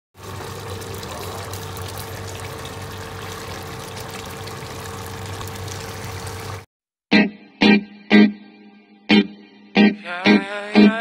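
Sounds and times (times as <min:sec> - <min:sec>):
pot simmering and bubbling: 0:00.2 - 0:06.7.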